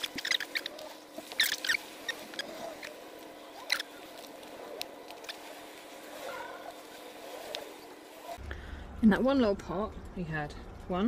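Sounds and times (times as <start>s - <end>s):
hands rustling damp compost: 0.0s - 8.4s
roots crackling: 0.0s - 11.0s.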